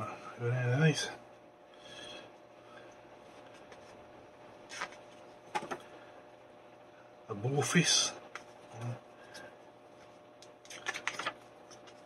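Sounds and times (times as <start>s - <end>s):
faint paper handling: 3.2s - 4.0s, 4.6s - 5.9s, 8.4s - 12.0s
paper pages turning: 4.6s - 5.8s, 9.3s - 12.0s.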